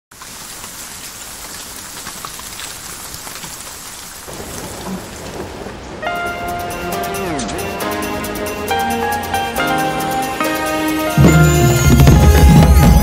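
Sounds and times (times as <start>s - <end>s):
falling rain hiss: 0.1s - 12.7s.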